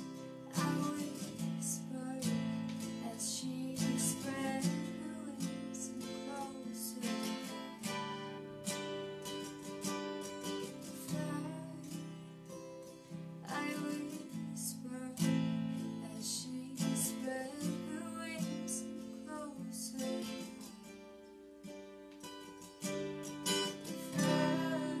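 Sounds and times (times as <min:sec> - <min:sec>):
woman singing: 0:00.0 - 0:08.6, 0:10.6 - 0:12.3, 0:13.4 - 0:20.8, 0:23.8 - 0:25.0
acoustic guitar strumming: 0:00.0 - 0:25.0.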